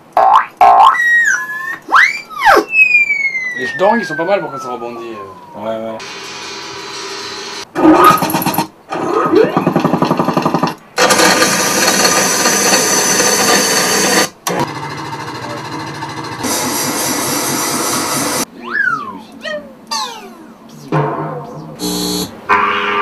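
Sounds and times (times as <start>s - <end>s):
falling whistle-like glide: 1.1s - 6.0s
fast mechanical rattle: 9.7s - 18.4s
dense noisy sound effects: 15.4s - 23.0s.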